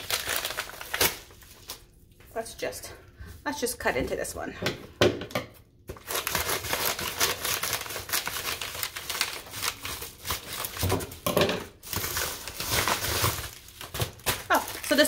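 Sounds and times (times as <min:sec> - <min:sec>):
plastic packaging crinkling and tearing: 0:00.0 - 0:02.0, 0:05.9 - 0:15.0.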